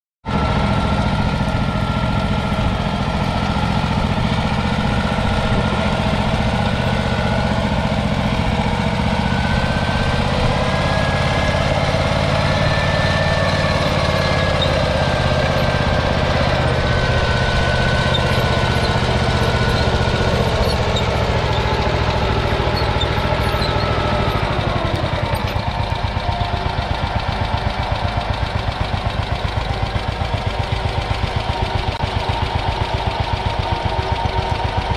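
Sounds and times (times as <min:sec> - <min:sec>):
single-cylinder engine running: 0:00.3 - 0:34.9.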